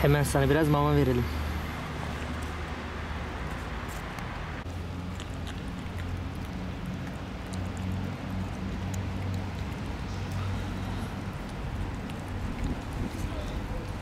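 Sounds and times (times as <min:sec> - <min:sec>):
cat chewing and licking: 0:03.5 - 0:14.0.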